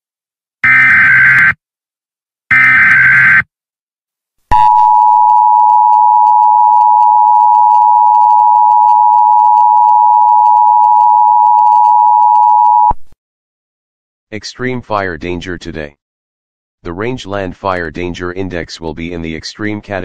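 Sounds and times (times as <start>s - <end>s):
harsh two-tone alert signal: 0.6s - 1.6s, 2.5s - 3.4s.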